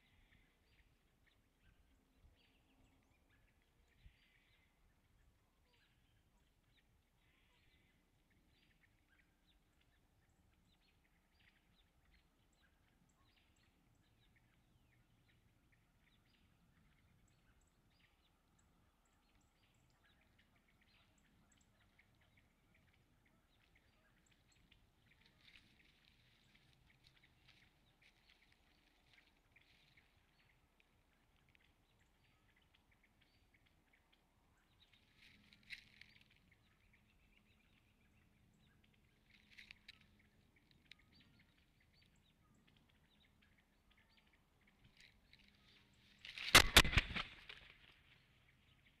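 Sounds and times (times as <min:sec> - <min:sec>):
faint small-bird chirps: 0:00.0 - 0:49.0
heavy eagle wingbeats: 0:46.3 - 0:47.9.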